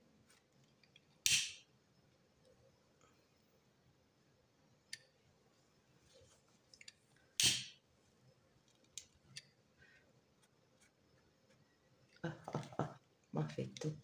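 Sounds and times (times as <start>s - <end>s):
person speaking: 12.2s - 14.0s.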